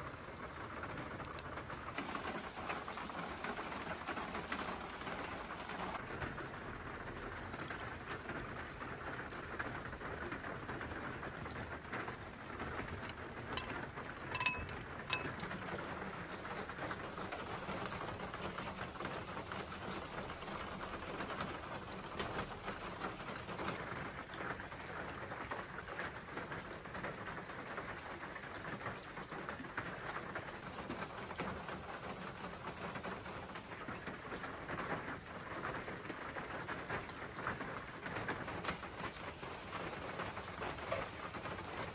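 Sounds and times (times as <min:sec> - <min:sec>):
rain on paved ground: 0:00.0 - 0:41.9
short clink: 0:13.6 - 0:15.4.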